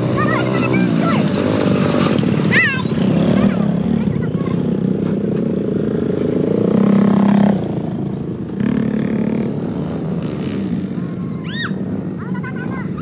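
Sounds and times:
quad bike engine running: 0.0s - 13.0s
high rising and falling call: 11.2s - 11.9s.

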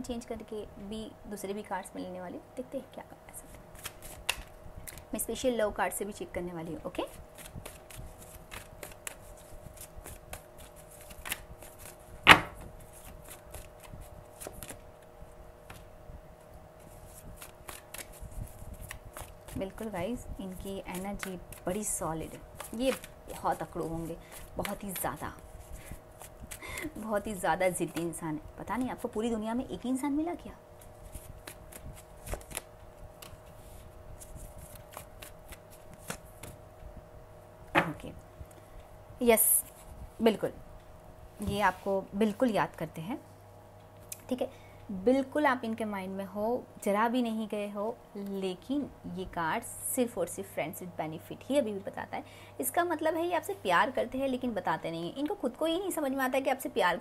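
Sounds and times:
tarot cards being shuffled: 3.4s - 5.1s, 6.8s - 14.9s, 16.8s - 29.2s, 30.8s - 36.6s.

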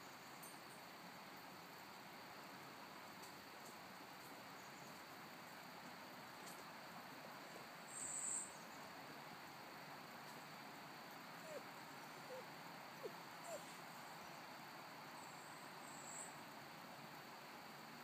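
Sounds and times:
faint steady hiss: 0.0s - 18.0s.

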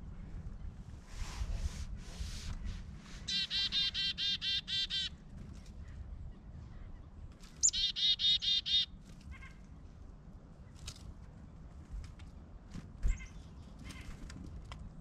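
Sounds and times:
chickadee calling: 3.2s - 5.2s, 7.6s - 9.5s.

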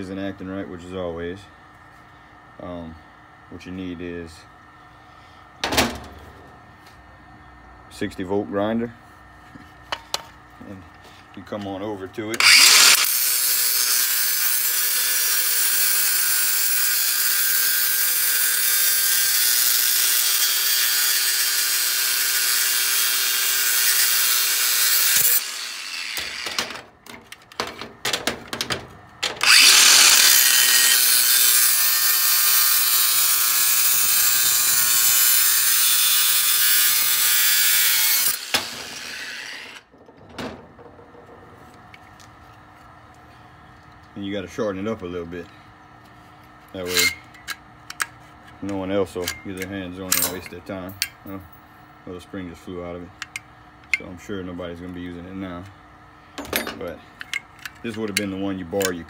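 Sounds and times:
angle grinder cutting metal: 12.4s - 26.8s, 29.2s - 39.9s, 46.8s - 47.2s
knocks and clatters: 26.5s - 29.4s, 39.9s - 42.2s.

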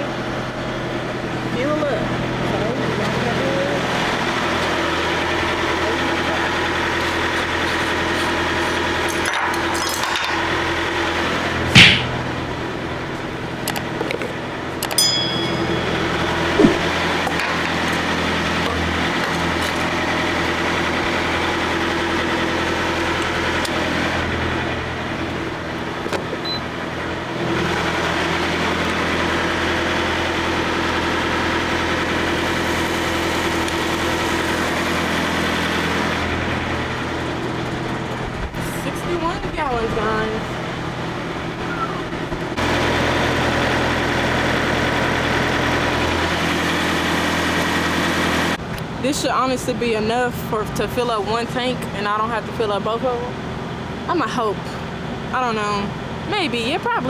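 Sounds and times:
diesel engine idling: 0.0s - 9.1s, 10.4s - 57.0s
sharp knock: 11.7s - 12.2s, 16.6s - 17.0s.

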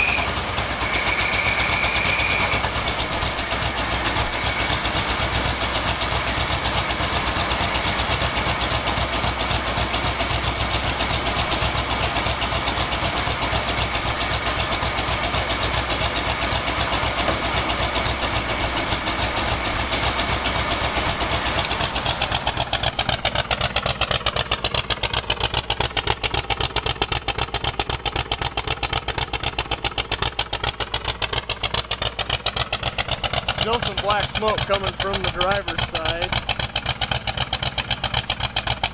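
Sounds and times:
rapid exhaust pulsing: 0.0s - 38.9s
truck engine idling: 0.0s - 38.9s.

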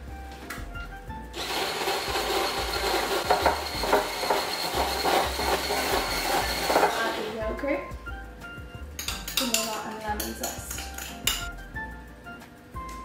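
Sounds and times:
stick blender whining: 1.4s - 7.4s.

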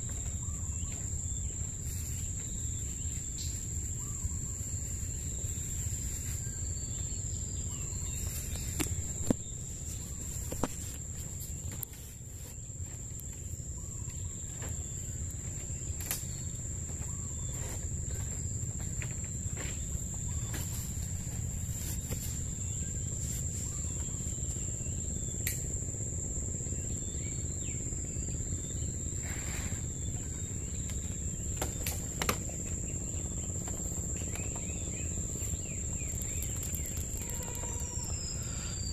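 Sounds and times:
low background rumble: 0.0s - 38.9s
insect trilling: 26.6s - 38.9s.

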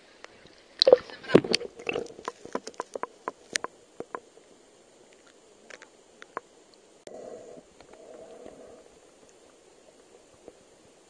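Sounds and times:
underwater clicks and ticks: 0.8s - 4.5s, 5.1s - 6.8s.

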